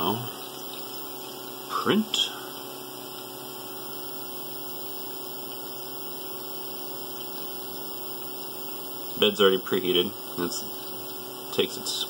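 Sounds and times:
cooling fans and pump humming: 0.0s - 12.0s.

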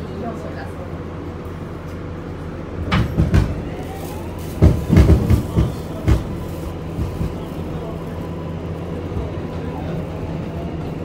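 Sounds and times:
train interior hum: 0.0s - 11.0s
wheels clacking over rail joints: 2.8s - 11.0s.

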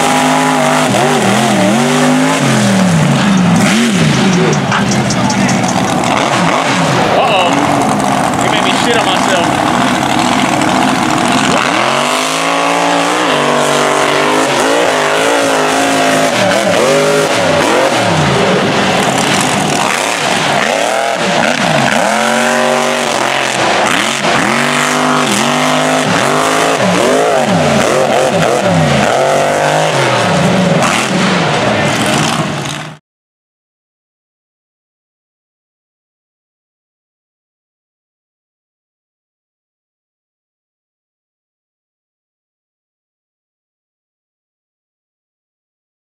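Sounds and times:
tires spinning in dirt: 0.0s - 33.0s
toy truck engine revving: 0.1s - 31.1s.

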